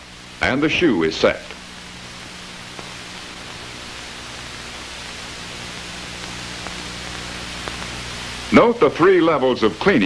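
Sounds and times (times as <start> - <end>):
low hum: 0.0 - 8.5
film soundtrack hiss: 0.0 - 10.0
faint clicks: 6.2 - 8.0.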